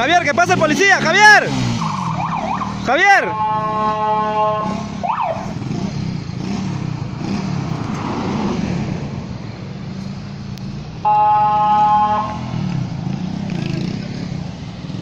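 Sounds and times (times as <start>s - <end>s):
motorcycle engine rumbling: 0.0s - 15.0s
car passing: 0.6s - 15.0s
loud horn: 1.8s - 5.4s, 11.0s - 12.6s.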